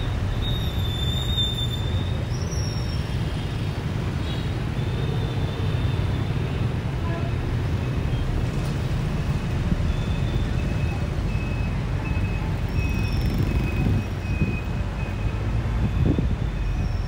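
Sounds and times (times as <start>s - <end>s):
bus engine rumble: 6.2s - 17.0s.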